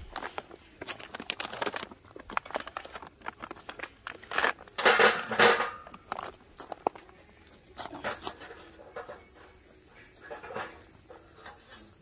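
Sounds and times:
foil-lined bag crinkling: 0:00.0 - 0:08.4
pine cones clattering on grate: 0:00.0 - 0:09.6, 0:10.2 - 0:12.0.

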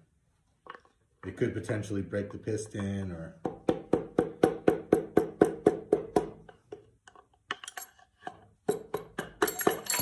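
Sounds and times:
hammer striking wooden handle: 0:02.8 - 0:06.9.

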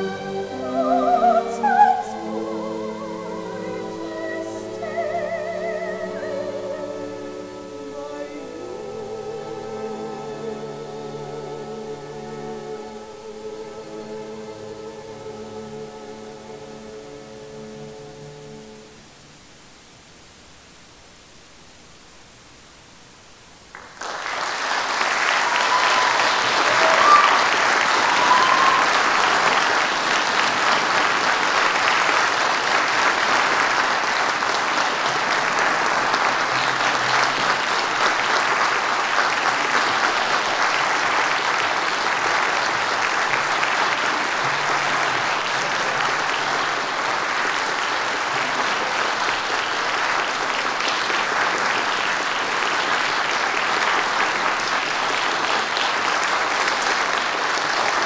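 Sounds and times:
audience applauding: 0:23.7 - 0:58.0
short cheers: 0:25.2 - 0:29.5.

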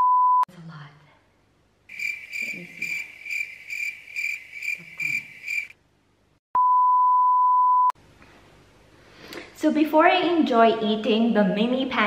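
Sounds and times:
high-pitched cricket-like chirp: 0:01.9 - 0:05.7
steady test-tone beep: 0:06.6 - 0:07.9.

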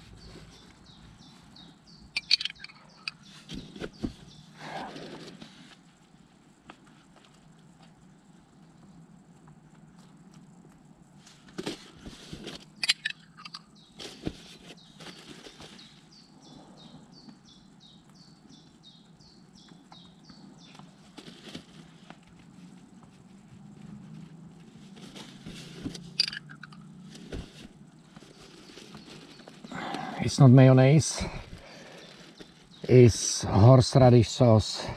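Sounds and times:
metal spoon scraping jar: 0:02.2 - 0:03.2, 0:26.0 - 0:26.9
plastic bag rustling: 0:14.0 - 0:16.1, 0:27.0 - 0:29.7.

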